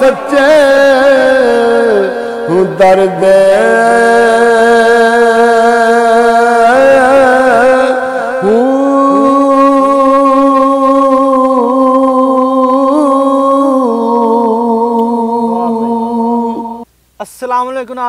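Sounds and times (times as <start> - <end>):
man singing long held note: 0.0 - 16.8.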